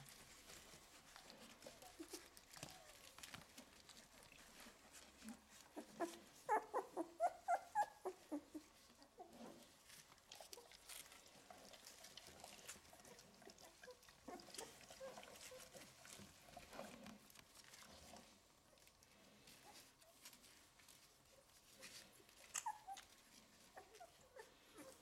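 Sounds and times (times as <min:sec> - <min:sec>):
puppies whimpering: 0:04.6 - 0:09.8, 0:12.8 - 0:16.7, 0:21.8 - 0:25.0.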